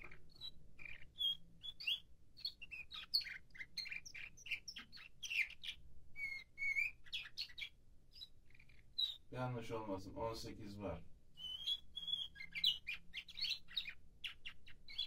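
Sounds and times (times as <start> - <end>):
low bird whistle: 0.0 - 8.4, 11.4 - 15.0
canary singing: 0.0 - 15.0.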